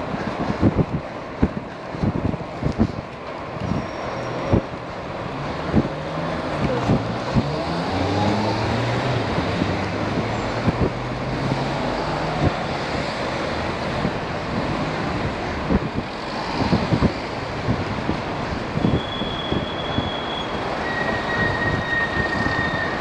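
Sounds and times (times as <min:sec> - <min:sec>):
road and wind noise: 0:00.0 - 0:23.0.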